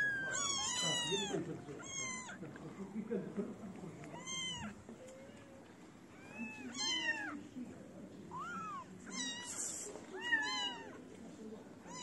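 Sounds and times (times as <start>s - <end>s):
kittens meowing: 0.0s - 2.4s, 4.1s - 5.6s, 6.2s - 7.4s, 8.3s - 11.0s.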